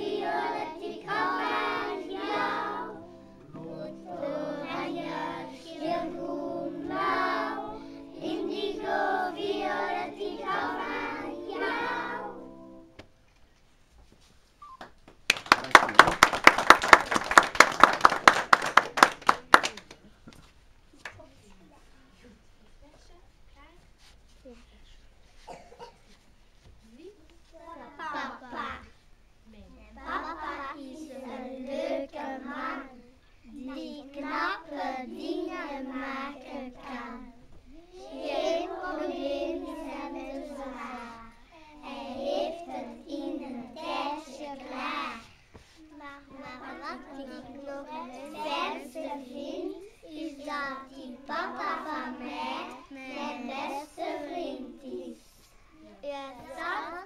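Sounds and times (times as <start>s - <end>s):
young boy singing: 0.0s - 12.4s, 30.0s - 55.3s
hands clapping: 14.7s - 21.2s.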